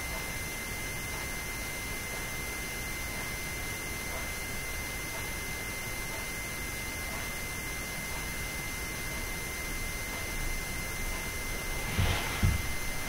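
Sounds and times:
high-pitched electrical whine: 8.4 - 13.0
steady hiss: 11.3 - 13.0.

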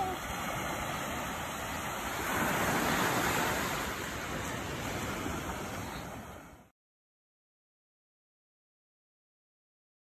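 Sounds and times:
ocean waves breaking on beach: 0.0 - 6.7.

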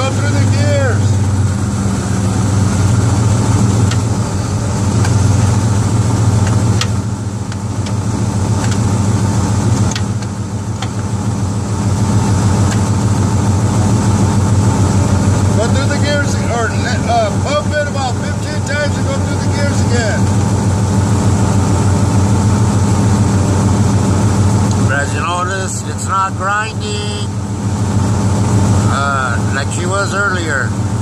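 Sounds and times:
truck engine idling: 0.0 - 31.0
gear shifting clicks: 2.4 - 13.5.

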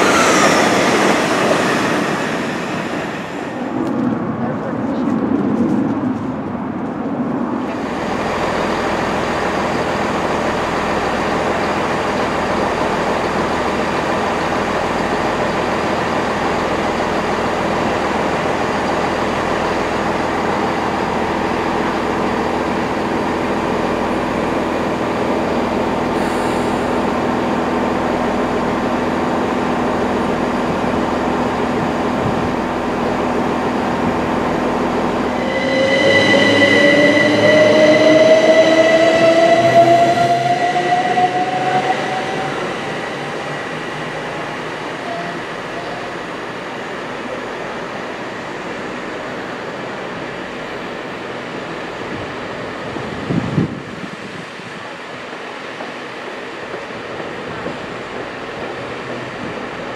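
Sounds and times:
train noise with hum: 0.0 - 59.9.

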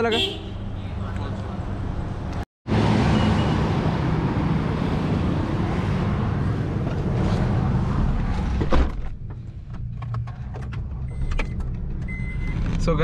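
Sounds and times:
busy road traffic: 0.0 - 13.0.

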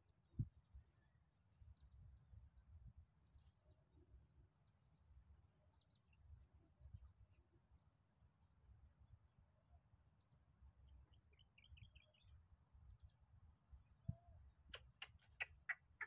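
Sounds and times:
faint bird chirps: 0.0 - 16.0
wind rumble on microphone: 0.3 - 0.8.

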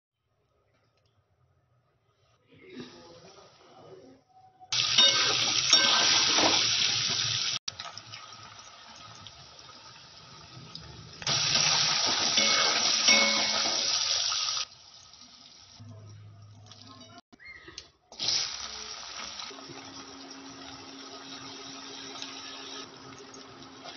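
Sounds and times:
egg frying in hot oil sizzling: 4.8 - 15.8, 18.2 - 23.9.

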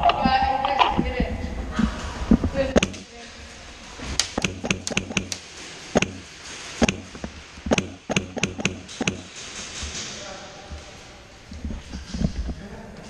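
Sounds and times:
pellets striking wood: 4.2 - 9.5.

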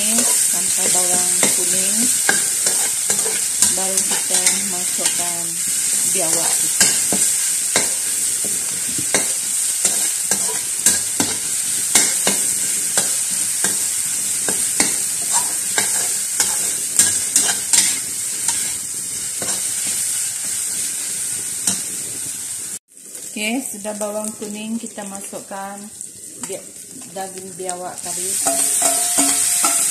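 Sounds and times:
metal spatula scraping a wok: 0.0 - 20.6, 28.3 - 29.9
spice paste sizzling in oil: 0.0 - 29.9.

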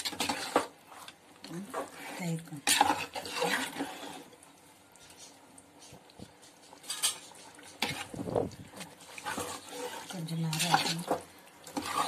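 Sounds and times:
spoon scraping metal pot: 0.0 - 4.3, 6.7 - 8.2, 8.8 - 12.0.

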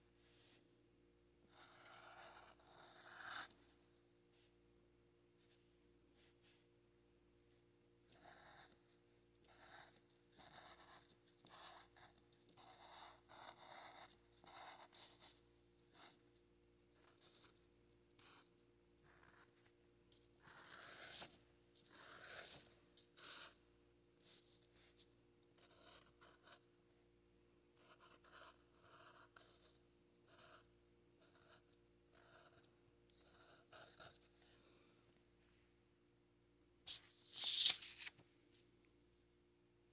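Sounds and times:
marker scratching on paper: 0.2 - 0.6, 1.5 - 3.7, 8.1 - 16.2, 16.9 - 23.6, 24.2 - 26.6, 27.8 - 34.6, 36.9 - 38.1.

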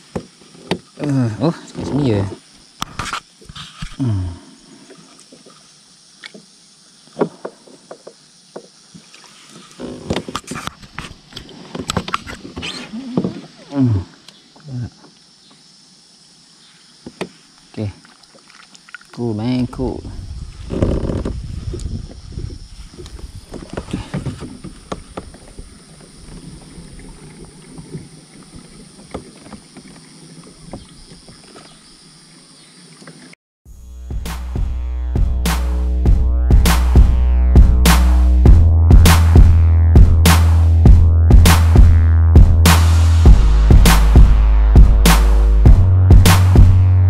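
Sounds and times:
water splashing against kayak: 4.8 - 14.3, 18.0 - 19.3, 20.6 - 33.4
water lapping: 17.9 - 19.2, 22.8 - 33.4.

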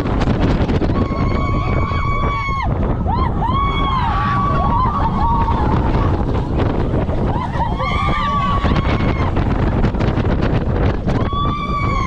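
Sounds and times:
roller coaster rumbling on track: 0.0 - 12.0
wind buffeting microphone: 0.0 - 12.0
riders screaming and whooping: 0.5 - 12.0.

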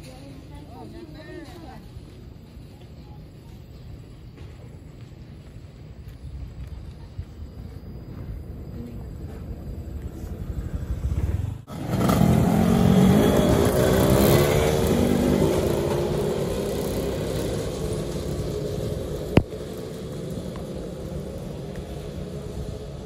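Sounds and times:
motorcycle engine pulling away: 9.7 - 23.0.

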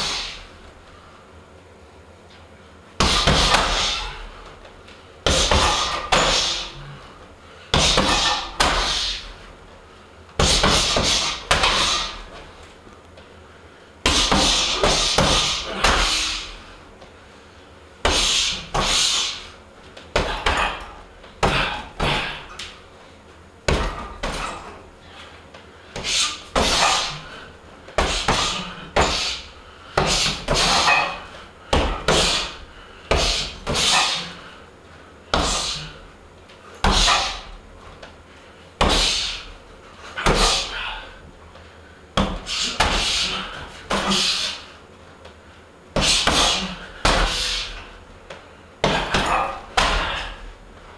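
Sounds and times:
punches thudding on heavy bag: 3.0 - 4.2, 5.2 - 6.8, 7.7 - 9.2, 10.4 - 12.3, 14.0 - 16.6, 20.1 - 22.5, 23.7 - 24.7, 26.0 - 27.3, 28.0 - 34.3, 35.3 - 36.0, 36.8 - 37.6, 38.8 - 39.5, 40.2 - 40.7, 42.2 - 44.5, 46.0 - 47.8, 48.8 - 50.5.

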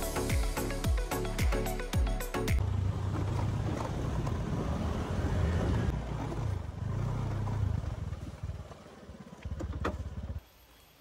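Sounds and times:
road noise: 2.3 - 10.5
scooter engine rumble: 2.6 - 10.4.

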